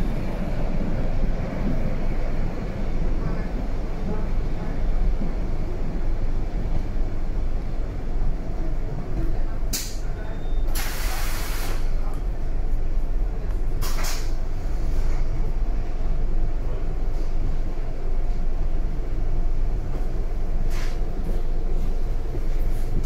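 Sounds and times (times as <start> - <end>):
train rumbling: 0.0 - 23.0
sharp hiss bursts: 10.8 - 11.9.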